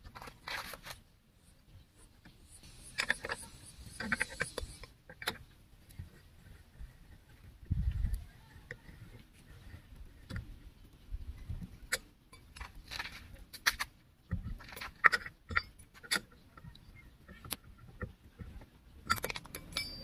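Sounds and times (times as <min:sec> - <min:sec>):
lug wrench clinking on nuts: 0:14.6 - 0:16.3, 0:19.0 - 0:20.0.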